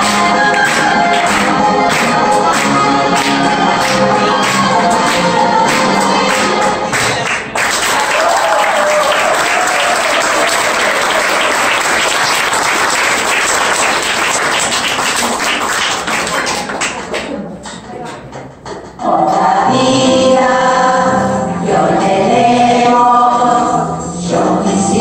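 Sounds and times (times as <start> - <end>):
audience applauding: 0.0 - 17.4.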